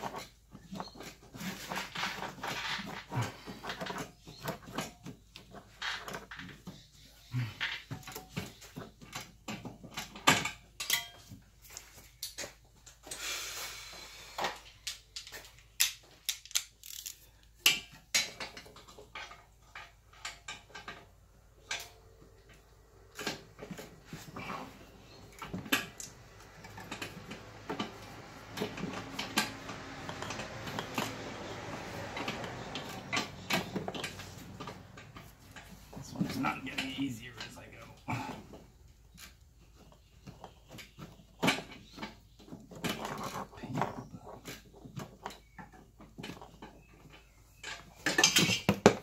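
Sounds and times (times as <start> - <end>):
metal tools clinking on metal: 7.4 - 11.4, 23.2 - 38.4, 47.0 - 48.8.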